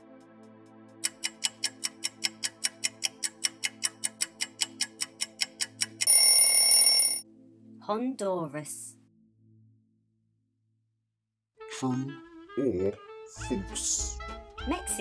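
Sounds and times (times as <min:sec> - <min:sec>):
soft background music: 0:00.0 - 0:09.9, 0:11.6 - 0:15.0
clock ticking: 0:01.0 - 0:07.1
alarm bell ringing: 0:06.0 - 0:07.2.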